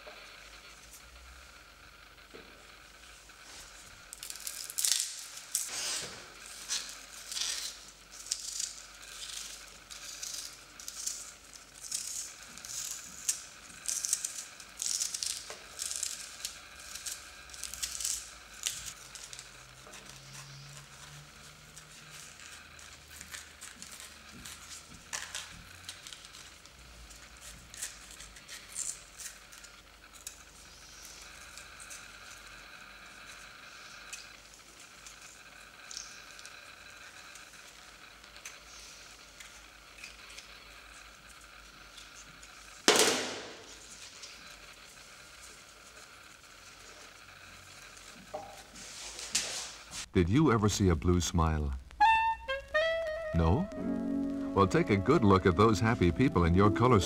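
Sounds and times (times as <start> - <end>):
onion skins crinkling: 4.1 - 32.5.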